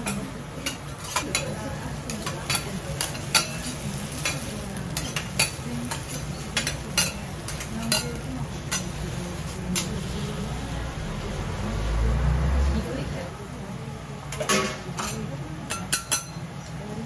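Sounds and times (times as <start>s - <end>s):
food sizzling on griddle: 1.1s - 12.2s
spatulas scraping on griddle: 2.1s - 10.5s
low hum: 10.0s - 13.3s.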